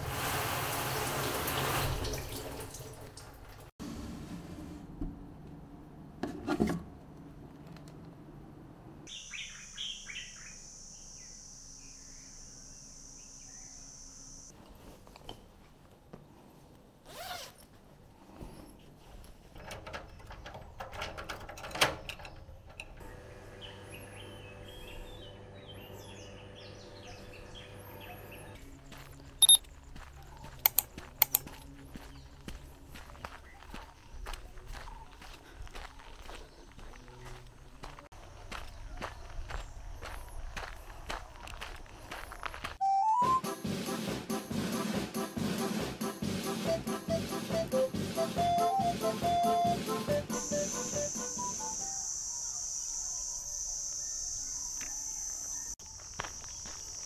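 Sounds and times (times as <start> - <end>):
birds chirping: 9.1 - 14.5, 21.9 - 42.6
footsteps on dirt road: 28.5 - 42.8, 54.8 - 57.0.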